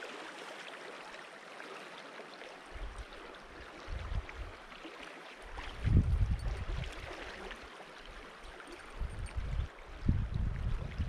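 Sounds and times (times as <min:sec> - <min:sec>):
flowing river water: 0:00.0 - 0:11.0
wind buffeting microphone: 0:03.8 - 0:04.6, 0:05.7 - 0:07.1, 0:08.9 - 0:11.0.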